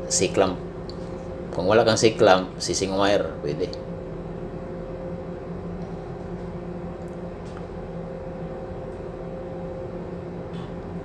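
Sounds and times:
ship machinery hum: 0:00.0 - 0:11.0.

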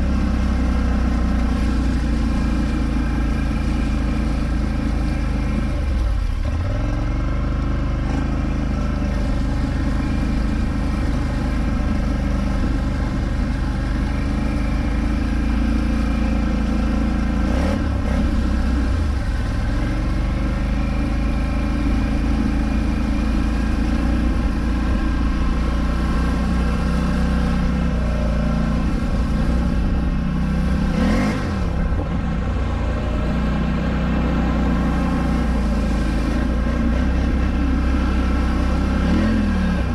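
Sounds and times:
water rushing and splashing: 0:00.0 - 0:07.8
atv engine revving: 0:00.0 - 0:39.9.

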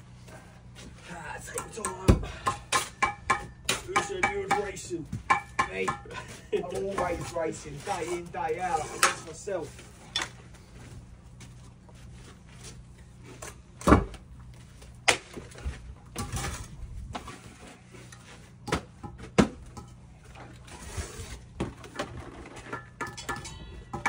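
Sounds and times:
steel trowels scraping mortar: 0:06.6 - 0:09.4.

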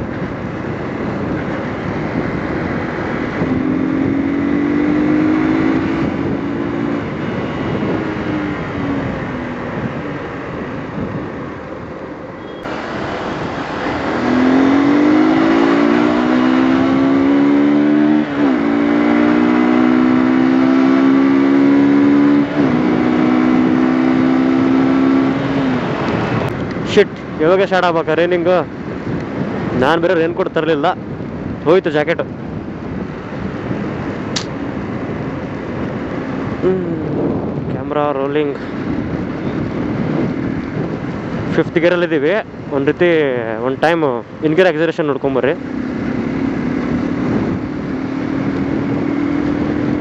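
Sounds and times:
motorcycle engine accelerating: 0:00.0 - 0:11.8, 0:12.4 - 0:27.0, 0:31.0 - 0:50.0
wind and tyre noise on wet road: 0:00.0 - 0:50.0.

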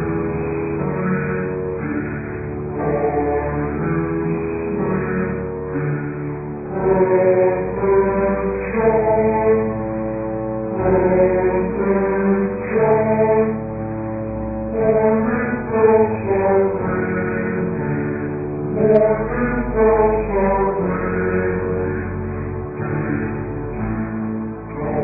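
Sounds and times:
low drone: 0:00.0 - 0:25.0
person chant-like singing: 0:04.8 - 0:10.0, 0:10.8 - 0:23.9.

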